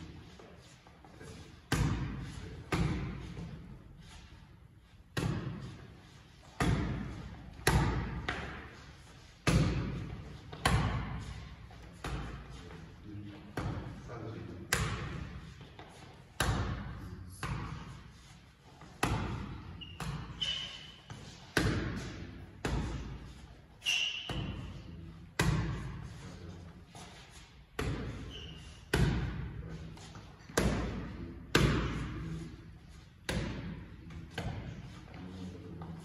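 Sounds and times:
short high squeaks: 19.8 - 21.1, 23.8 - 24.5.

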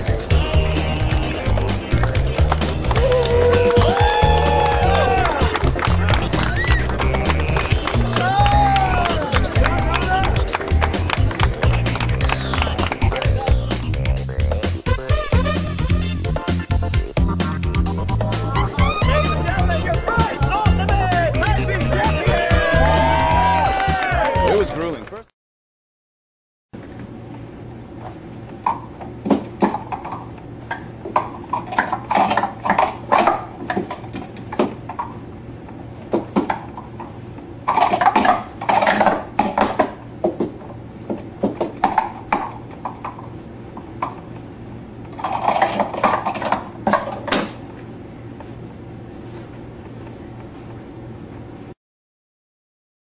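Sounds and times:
steady low hum: 0.0 - 23.6
plastic cups clacking: 29.6 - 35.2, 37.7 - 40.6, 41.4 - 43.2, 45.2 - 47.6.

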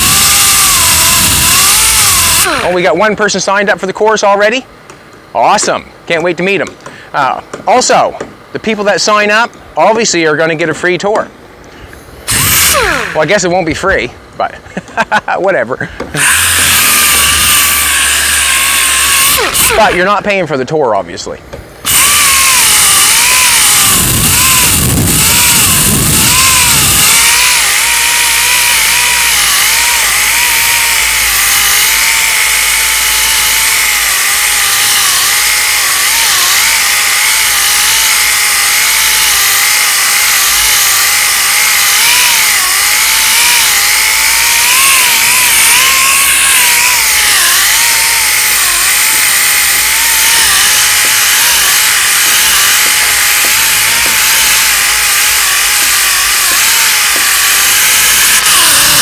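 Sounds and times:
orbital sander grinding filler: 0.0 - 3.2, 12.0 - 14.0, 16.1 - 20.4, 21.8 - 59.0.

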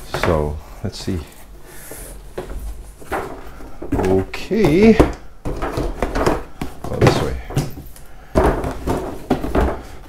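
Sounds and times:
dull knocks: 2.4 - 10.0.

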